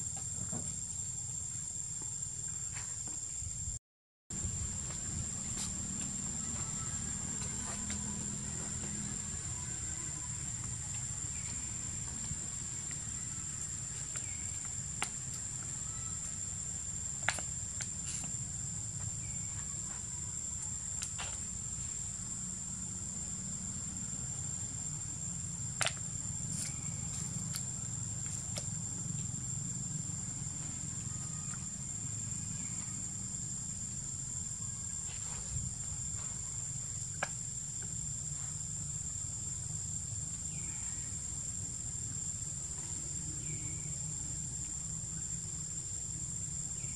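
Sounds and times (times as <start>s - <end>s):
high insect drone: 0.0s - 46.9s
low outdoor rumble: 4.3s - 35.0s.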